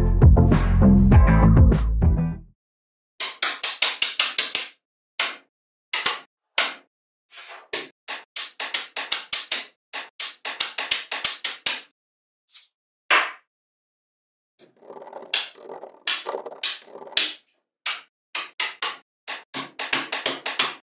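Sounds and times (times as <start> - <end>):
magnetic metal balls clicking: 14.7 - 17.3.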